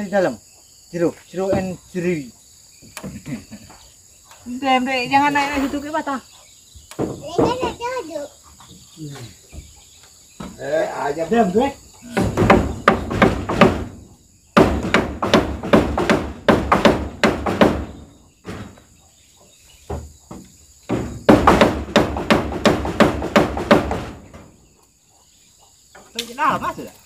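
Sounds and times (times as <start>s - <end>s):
high insect trill: 0.0s - 27.0s
hammer driving nails: 12.1s - 14.0s, 14.6s - 18.0s, 20.9s - 24.4s.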